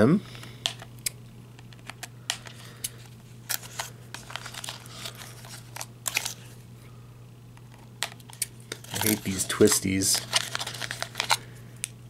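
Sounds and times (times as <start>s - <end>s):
cardboard packaging rustling: 3.4s - 6.6s, 8.7s - 11.4s.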